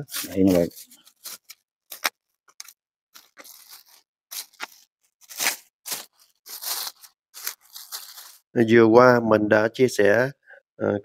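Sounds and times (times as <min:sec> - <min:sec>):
plastic bag crinkling: 0:00.1 - 0:08.5
leaves rustling: 0:03.2 - 0:08.4.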